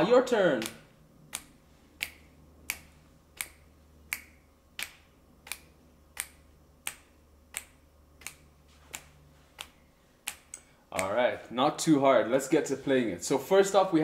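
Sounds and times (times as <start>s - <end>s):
finger snaps: 0.6s - 11.2s.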